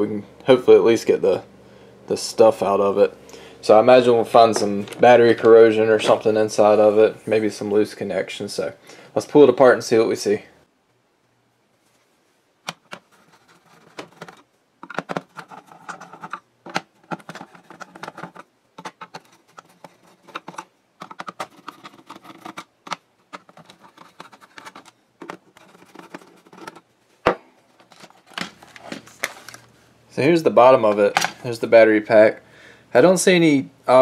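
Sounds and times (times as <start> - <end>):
screws scraping and creaking: 13.1 - 22.7.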